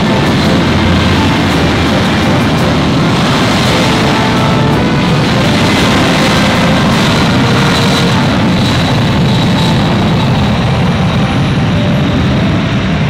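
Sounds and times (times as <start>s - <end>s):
jet engines roaring: 0.0s - 13.0s.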